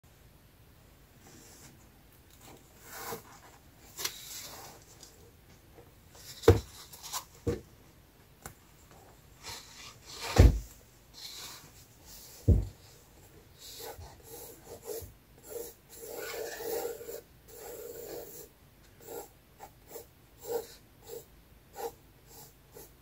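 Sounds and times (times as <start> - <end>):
dull thumps of book cover: 10.3 - 10.7, 12.4 - 12.8.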